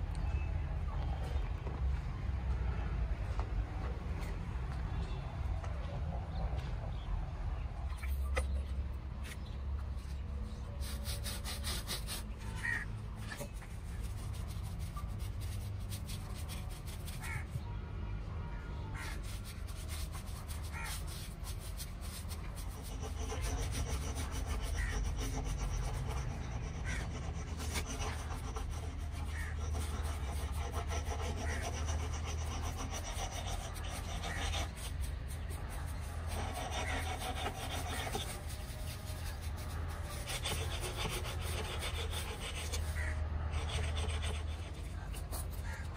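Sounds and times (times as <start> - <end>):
brush scrubbing on cement: 10.6 - 17.6, 19.0 - 45.9.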